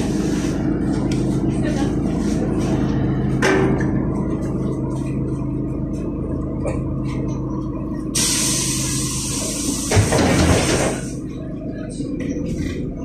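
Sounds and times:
bus engine humming: 0.0s - 13.0s
compressed air hissing: 8.2s - 11.1s.

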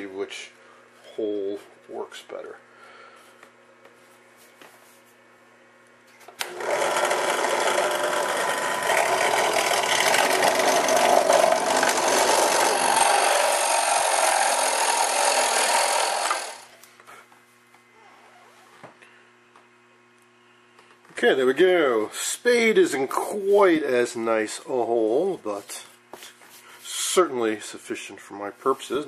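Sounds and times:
drill press boring wood: 6.4s - 16.8s.

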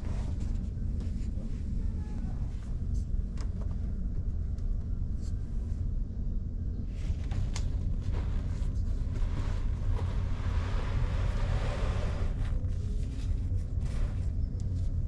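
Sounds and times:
ferry machinery rumble: 6.8s - 15.0s.

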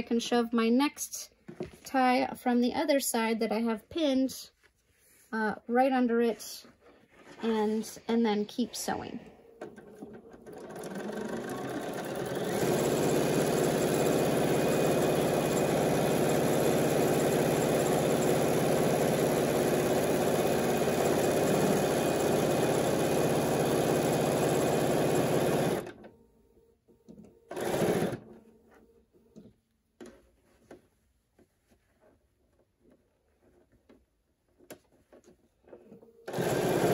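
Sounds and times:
sewing machine stitching: 9.6s - 26.1s, 27.2s - 28.4s, 35.1s - 36.9s.

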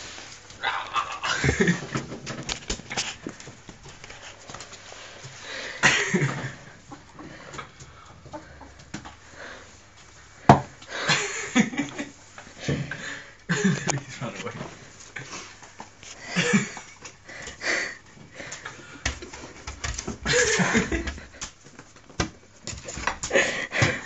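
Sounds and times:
broom scraping over carpet: 0.0s - 0.5s
ferrets dooking: 0.6s - 1.8s.

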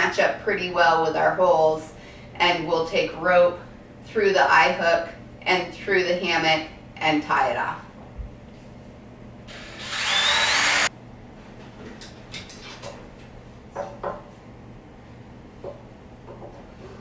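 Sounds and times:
small drill whining into wood: 9.5s - 10.9s.

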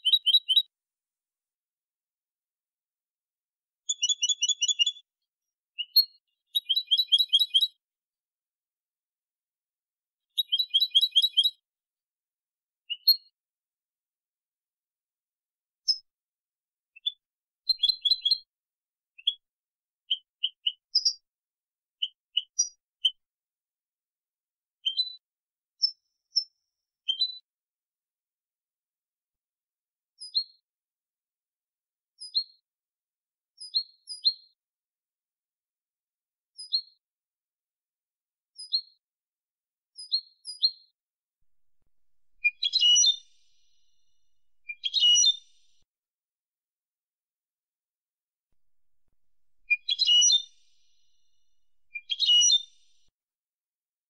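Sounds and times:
bird chirping and singing: 42.4s - 43.2s, 44.8s - 45.4s, 49.7s - 50.4s, 52.0s - 52.7s.

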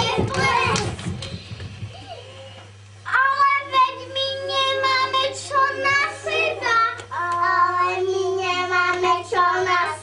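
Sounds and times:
children singing together: 0.0s - 0.9s, 3.1s - 10.0s.

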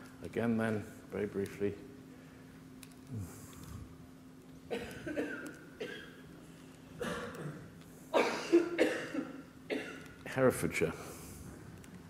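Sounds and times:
man coughing: 4.7s - 6.2s, 7.0s - 10.1s.

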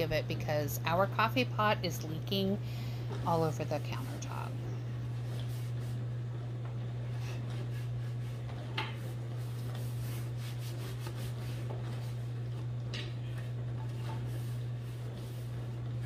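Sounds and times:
steady low hum: 0.0s - 16.0s
towel rubbing on cutting board: 7.1s - 12.4s, 13.9s - 15.8s.

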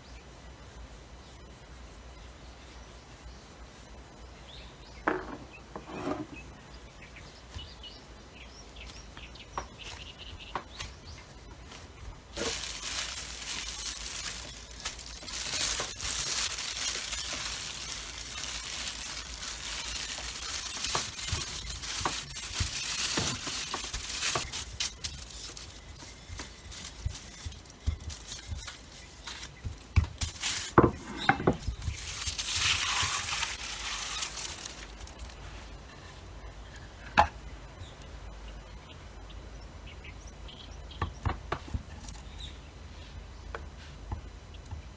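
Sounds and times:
cling wrap crinkling: 11.6s - 36.2s.

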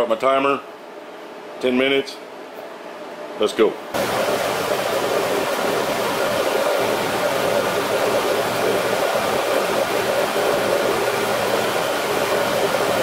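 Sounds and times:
jam boiling in a pot: 4.0s - 13.0s.

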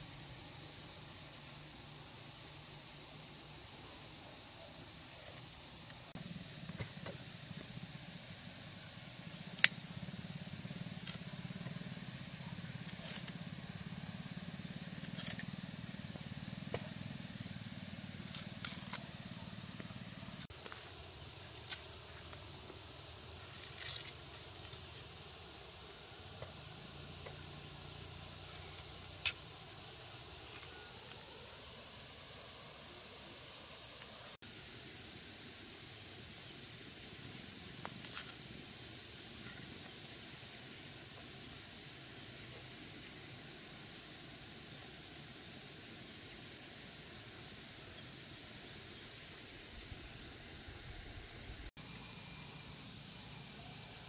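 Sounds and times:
steady high hiss: 0.0s - 54.0s
sugar cane rind cracking: 14.9s - 15.5s, 18.3s - 19.1s, 21.6s - 21.9s, 23.4s - 24.9s.

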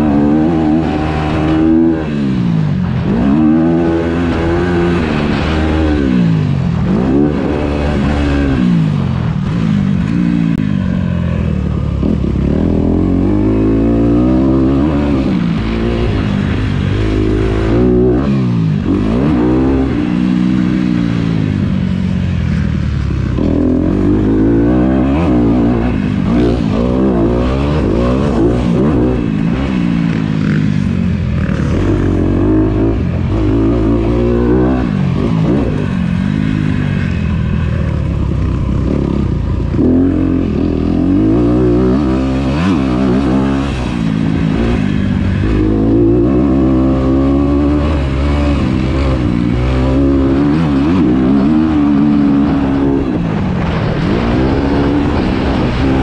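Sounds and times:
dirt bike engine revving: 0.0s - 56.0s
wind noise: 0.0s - 56.0s.

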